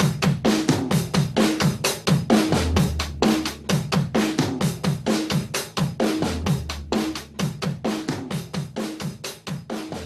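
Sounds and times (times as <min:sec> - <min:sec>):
fast drum kit beat: 0:00.0 - 0:10.0.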